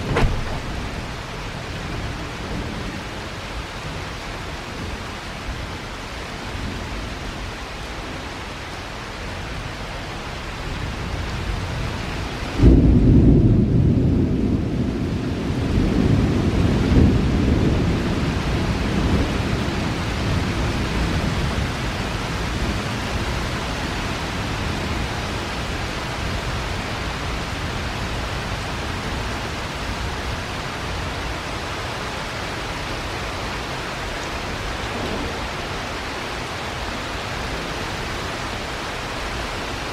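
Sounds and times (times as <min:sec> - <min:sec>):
thunder clap and rumble: 0:00.0 - 0:05.5, 0:11.0 - 0:31.1, 0:33.4 - 0:36.1
steady rain: 0:00.0 - 0:39.9.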